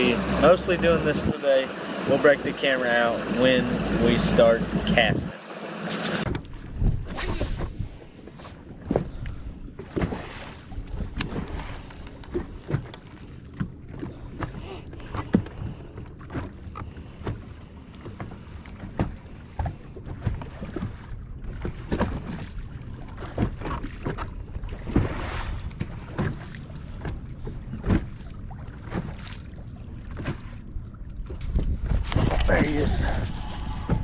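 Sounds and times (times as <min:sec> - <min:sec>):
waves slapping against boat hull: 0:00.0 - 0:34.0
wind on microphone: 0:06.4 - 0:12.8, 0:31.2 - 0:34.0
low hum: 0:25.6 - 0:34.0.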